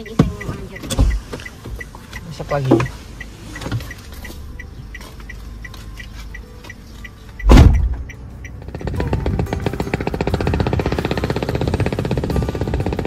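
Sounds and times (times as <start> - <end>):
car warning chime beeping: 0.0 - 12.9
loud thump: 7.5 - 8.0.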